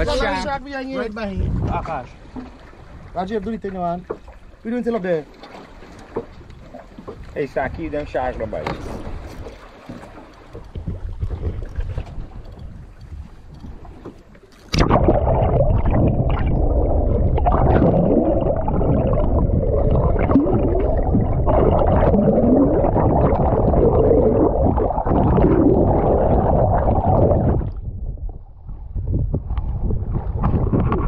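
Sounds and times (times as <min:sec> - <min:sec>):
underwater rushing and gurgling: 0:00.0 - 0:31.0
water bubbling: 0:14.6 - 0:31.0.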